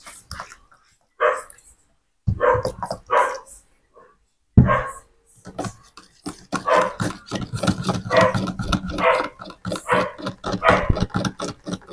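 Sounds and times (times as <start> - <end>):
dog barking: 1.2 - 1.5, 2.3 - 5.1, 6.6 - 7.0, 8.1 - 11.0.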